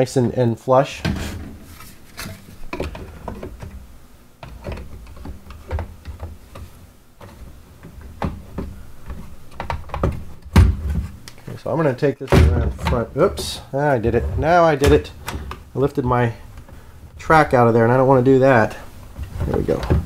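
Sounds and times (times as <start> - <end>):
plastic clicks and knocks: 4.4 - 11.5
low rubbing rumble: 12.5 - 16.3.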